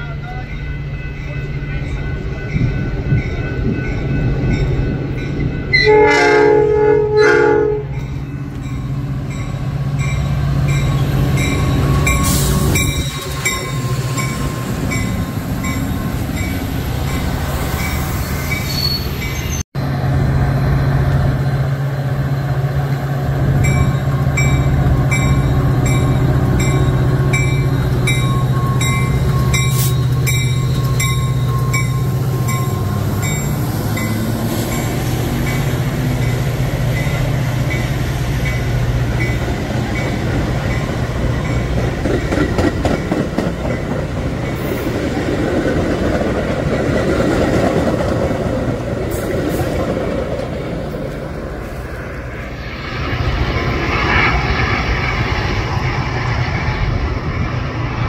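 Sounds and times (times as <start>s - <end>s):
crossing bell dinging: 0.0s - 19.6s, 23.6s - 44.7s
passing train rumble: 0.0s - 58.0s
train horn: 5.7s - 8.0s.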